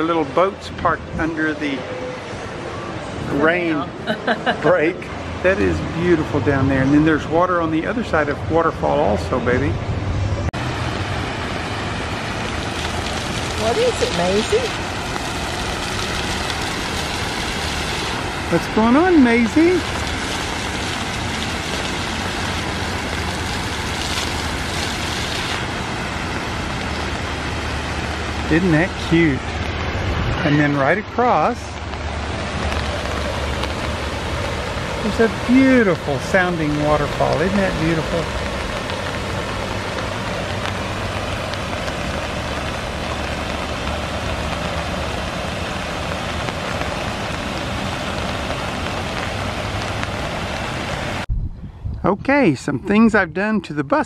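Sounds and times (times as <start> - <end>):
fountain water splashing: 0.0 - 9.8, 10.6 - 51.3
low rumble: 5.4 - 18.7, 51.2 - 53.5.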